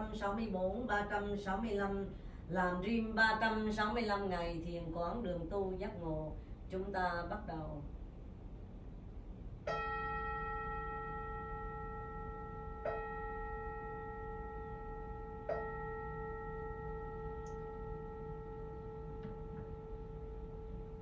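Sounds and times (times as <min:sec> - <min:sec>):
singing bowl ringing: 0:09.7 - 0:21.0.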